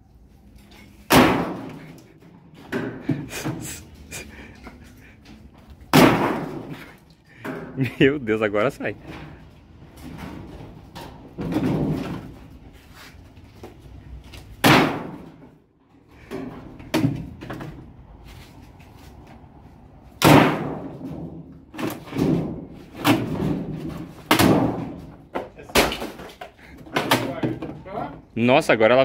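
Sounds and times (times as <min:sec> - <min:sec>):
plastic parts knocking and banging: 0:00.6 - 0:03.8, 0:09.0 - 0:12.6, 0:16.2 - 0:17.9, 0:20.2 - 0:28.2.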